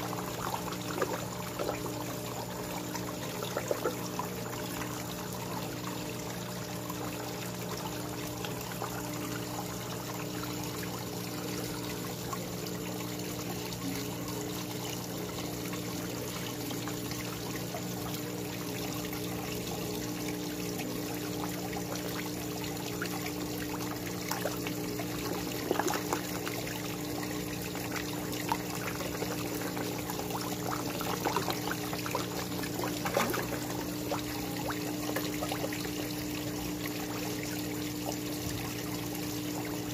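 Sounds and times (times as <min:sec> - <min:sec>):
low steady hum: 0:00.0 - 0:39.9
waterfall pouring into pond: 0:10.3 - 0:39.9
fish splashing at surface: 0:27.5 - 0:37.7.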